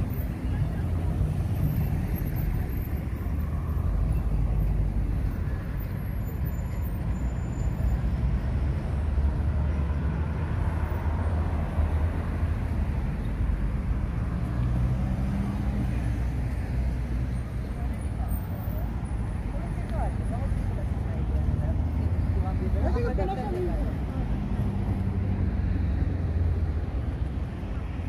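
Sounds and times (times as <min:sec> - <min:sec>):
cars driving past: 0:00.0 - 0:28.0.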